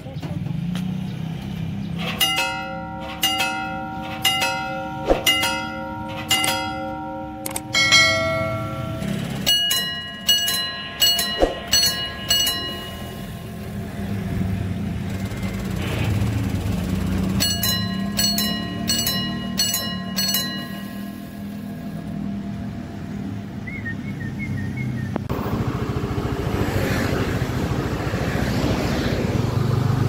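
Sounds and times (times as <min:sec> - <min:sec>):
level crossing bells ringing: 0:02.0 - 0:22.5.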